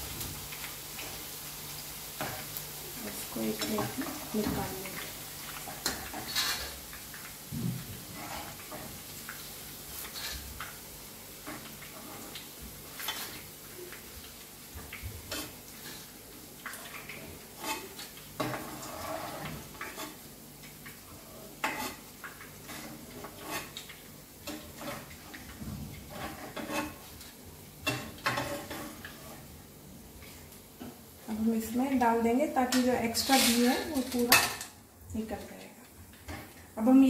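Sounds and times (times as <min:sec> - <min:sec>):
faint sizzle of frying oil: 0:00.0 - 0:37.0
metal spoon scraping a pan: 0:05.6 - 0:06.8, 0:08.1 - 0:08.9, 0:10.0 - 0:10.5, 0:16.7 - 0:20.2, 0:21.4 - 0:22.0, 0:22.6 - 0:25.2, 0:26.0 - 0:27.2, 0:27.8 - 0:29.5, 0:32.7 - 0:34.7.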